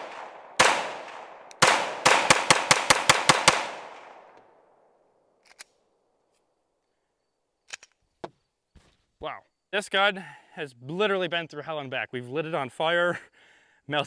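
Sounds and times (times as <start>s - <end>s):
pistol shots with echo: 0.0s - 4.4s.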